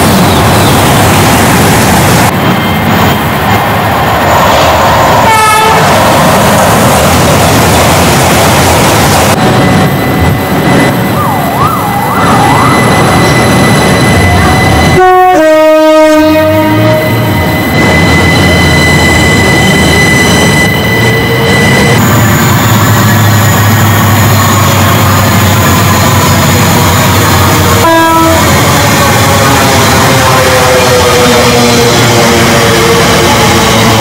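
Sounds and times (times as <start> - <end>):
train running noise: 0.0 - 34.0
train horn: 5.2 - 5.9, 14.4 - 17.4, 27.7 - 32.0.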